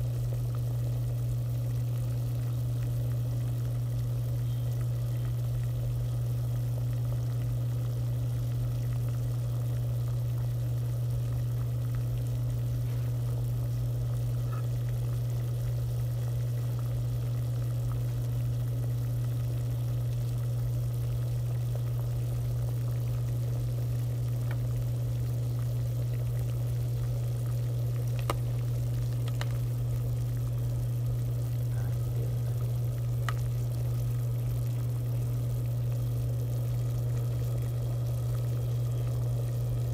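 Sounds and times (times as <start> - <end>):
steady low hum: 0.0 - 39.9
water boiling in pot: 0.0 - 39.9
faint clicks: 28.1 - 29.6, 33.2 - 33.5.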